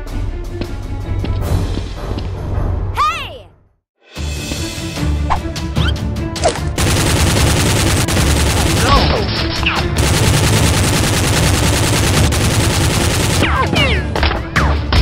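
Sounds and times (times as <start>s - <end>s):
toy blaster gunfire: 6.8s - 9.2s, 10.0s - 13.7s.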